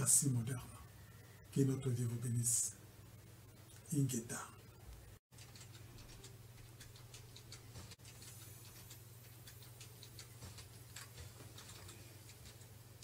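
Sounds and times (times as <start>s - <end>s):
keyboard typing: 5.3s - 12.8s.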